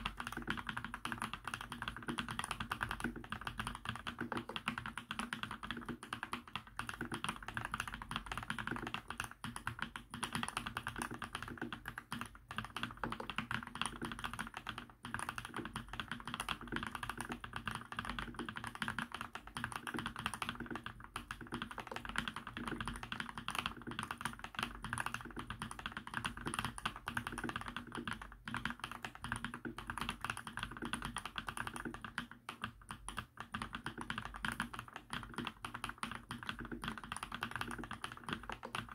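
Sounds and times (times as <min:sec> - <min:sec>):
fast typing on mechanical keyboard: 0:00.0 - 0:38.9.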